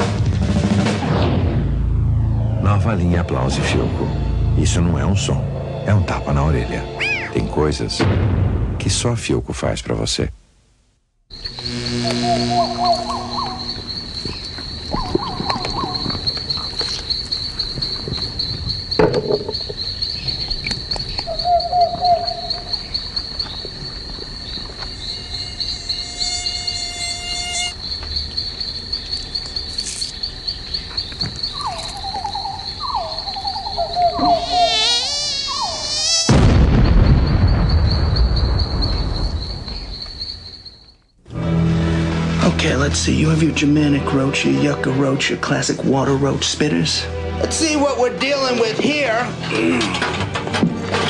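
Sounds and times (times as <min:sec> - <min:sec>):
loud sudden noise: 0:00.0 - 0:02.6, 0:36.2 - 0:39.5
short lower trilled insect calls: 0:11.3 - 0:41.2
insect whine wavering in pitch: 0:11.3 - 0:43.2
crickets chirping: 0:11.3 - 0:51.0.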